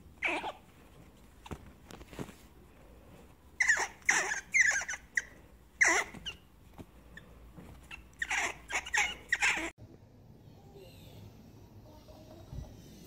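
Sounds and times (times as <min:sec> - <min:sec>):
squirrel squeaking: 0:00.2 - 0:00.7, 0:03.6 - 0:06.5, 0:07.1 - 0:09.7.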